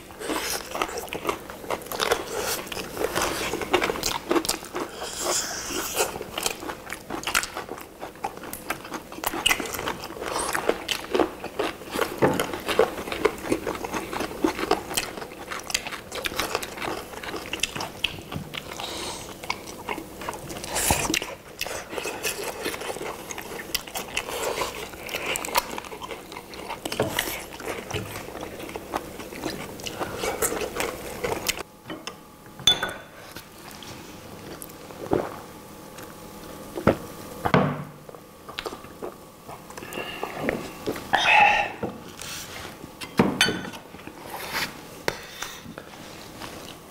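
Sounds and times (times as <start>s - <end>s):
people biting and chewing: 0.0s - 31.7s
glass clinking: 32.6s - 33.1s.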